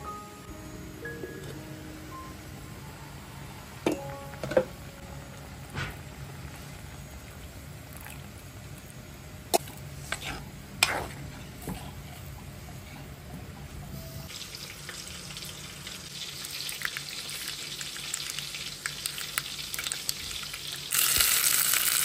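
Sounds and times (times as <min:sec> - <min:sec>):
steady low hum: 0:00.0 - 0:14.3.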